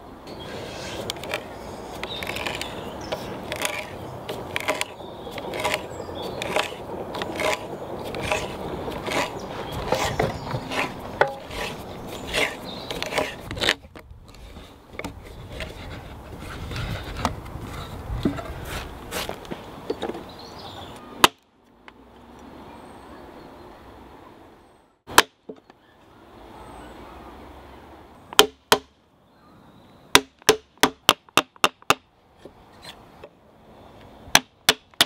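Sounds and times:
hand auger boring into wood: 0.5s - 18.4s.

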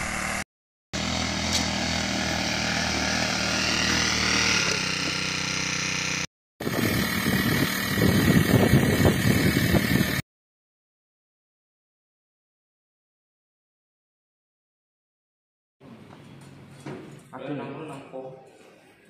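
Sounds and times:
small petrol engine running: 0.0s - 0.4s, 1.0s - 10.2s.

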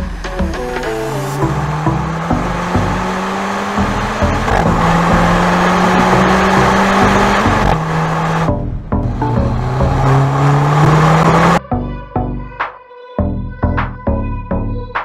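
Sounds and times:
car engine running at speed: 0.0s - 11.6s
background music: 0.0s - 15.0s.

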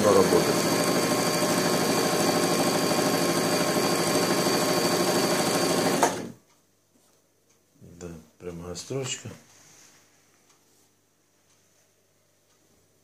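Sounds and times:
sewing machine running: 0.0s - 6.4s
sewing machine stopping click: 0.1s - 6.4s.

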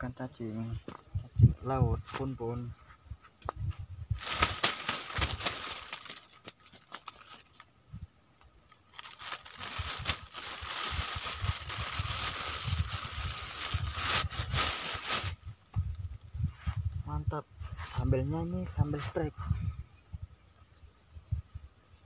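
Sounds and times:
crinkling rustling handling noise: 4.2s - 7.7s, 8.7s - 15.8s.

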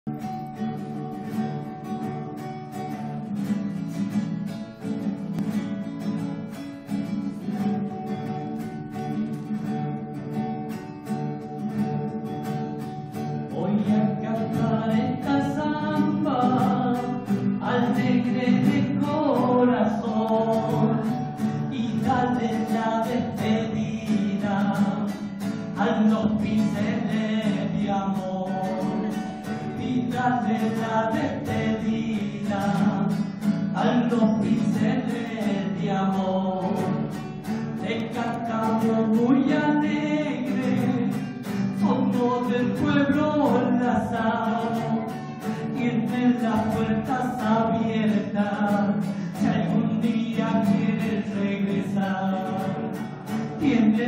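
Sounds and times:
acoustic guitar folk song: 0.0s - 54.0s
man singing: 13.1s - 54.0s.

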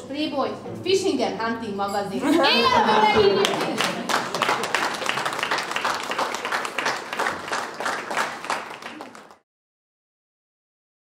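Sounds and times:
crowd applauding: 3.1s - 9.4s.

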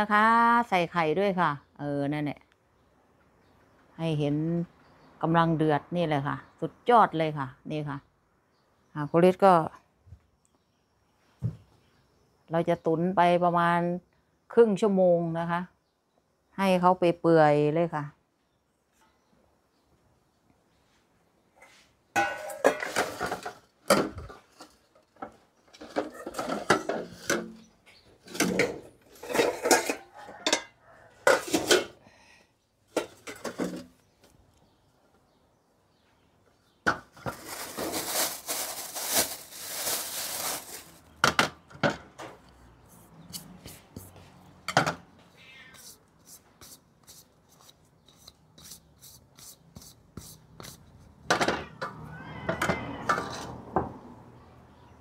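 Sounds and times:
kitchenware clattering: 22.2s - 24.4s, 25.8s - 27.6s, 28.3s - 32.0s.

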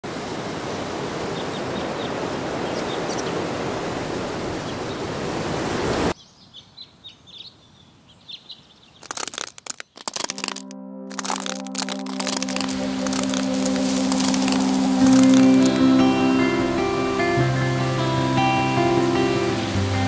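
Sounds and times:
small birds chirping: 1.4s - 3.5s, 6.2s - 10.6s
sharp clicks: 9.0s - 15.8s
rushing of woods: 9.0s - 15.9s.

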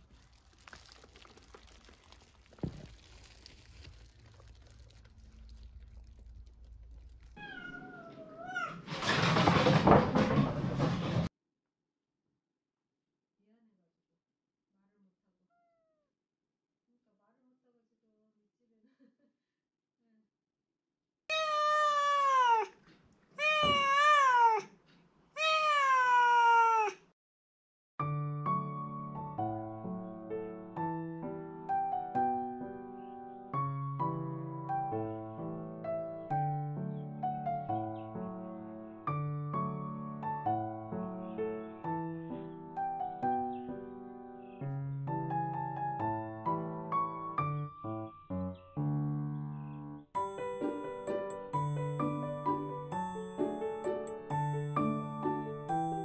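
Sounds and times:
cat meowing: 7.4s - 8.8s, 15.5s - 16.1s, 21.3s - 22.8s, 23.4s - 24.8s, 25.4s - 27.0s.

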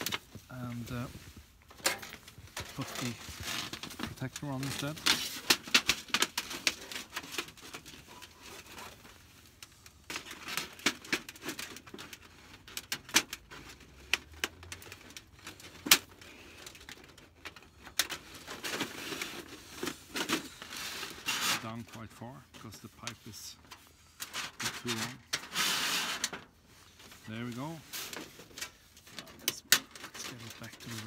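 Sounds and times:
metal pipe clinking and scraping: 1.7s - 3.7s.

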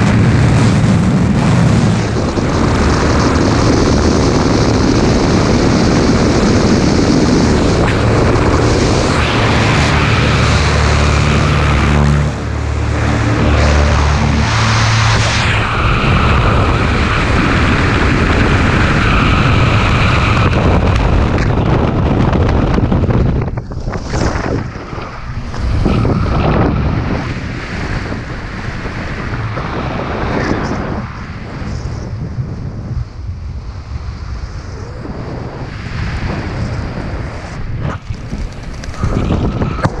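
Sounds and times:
wind buffeting microphone: 0.0s - 40.0s
parachute fluttering: 22.3s - 31.1s, 36.4s - 40.0s.

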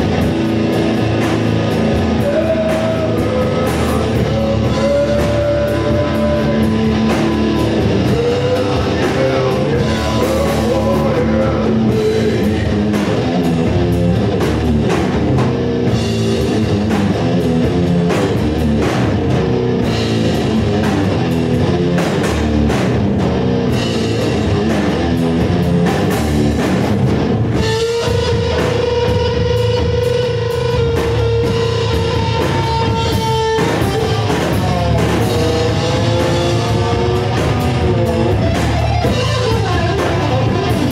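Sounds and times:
bass guitar: 0.0s - 40.9s
drum kit: 0.0s - 40.9s
electric guitars: 0.0s - 40.9s
person singing: 2.1s - 13.2s.

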